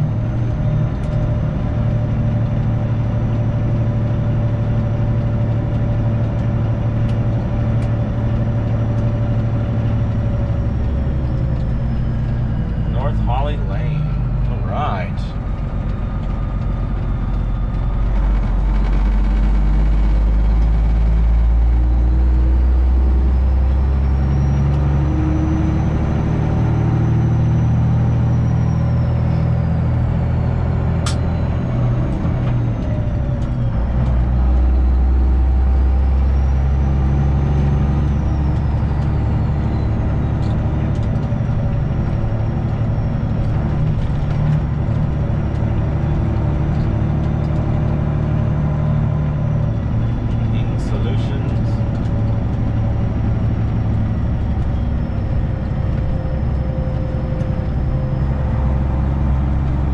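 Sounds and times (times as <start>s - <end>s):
truck engine drone: 0.0s - 59.9s
sharp click: 31.1s - 31.3s.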